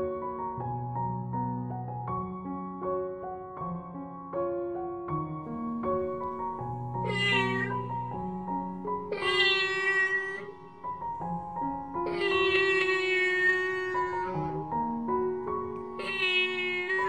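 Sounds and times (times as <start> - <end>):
piano music: 0.0 - 17.0
kitten meowing: 6.9 - 14.9, 15.6 - 17.0.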